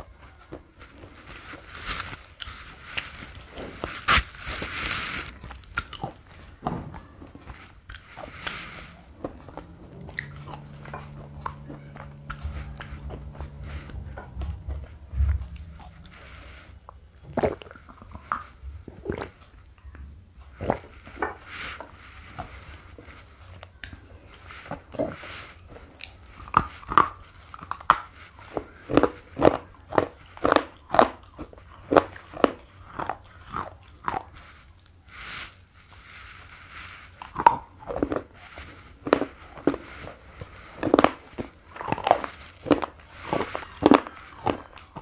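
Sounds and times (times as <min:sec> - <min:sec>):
slate pencil being crunched: 0:01.0 - 0:06.6.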